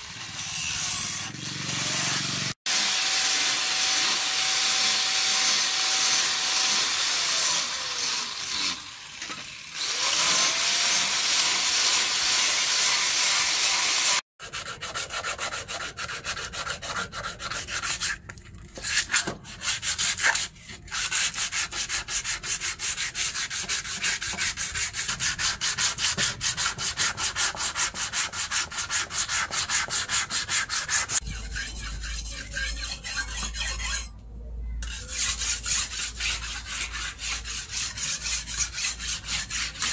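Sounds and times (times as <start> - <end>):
angle grinder sanding wood: 0.0 - 9.0
blade on sharpening stone: 31.1 - 34.2, 34.8 - 39.9.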